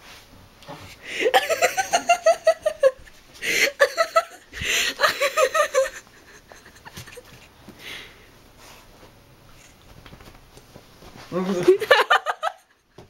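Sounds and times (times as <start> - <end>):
person laughing: 1.1 - 7.5, 11.6 - 12.7.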